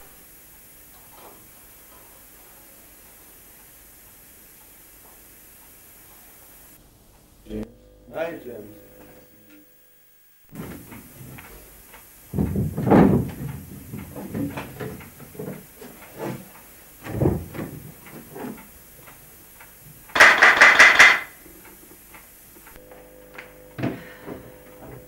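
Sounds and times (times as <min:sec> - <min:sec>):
door shutting: 0:12.3 - 0:15.5, 0:17.0 - 0:17.8, 0:20.2 - 0:21.3
wooden knocks: 0:12.4 - 0:16.4, 0:20.2 - 0:21.3
rapid rattle of clicks: 0:17.9 - 0:22.8.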